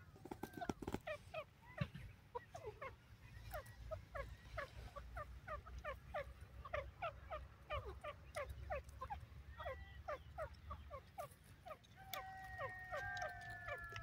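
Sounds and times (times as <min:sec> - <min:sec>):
partridge chattering call: 0:00.3 - 0:14.0.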